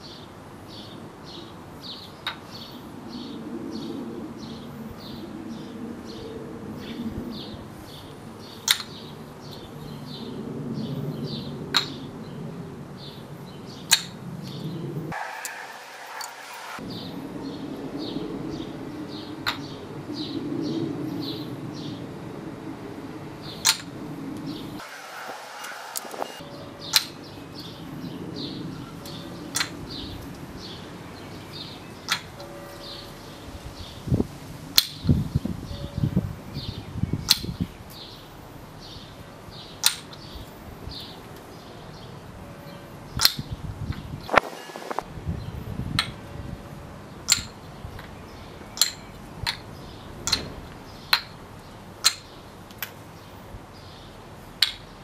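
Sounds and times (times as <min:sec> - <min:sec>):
wooden clacks of toy ball: 0:08.6 - 0:09.0, 0:11.7 - 0:12.0, 0:13.9 - 0:14.2, 0:19.4 - 0:19.6, 0:23.6 - 0:23.9, 0:26.9 - 0:27.2, 0:29.5 - 0:29.8, 0:32.1 - 0:32.4, 0:37.3 - 0:37.6, 0:39.8 - 0:40.2, 0:43.2 - 0:43.5, 0:46.0 - 0:46.2, 0:47.2 - 0:48.1, 0:48.8 - 0:51.4, 0:52.0 - 0:53.0, 0:54.6 - 0:54.8.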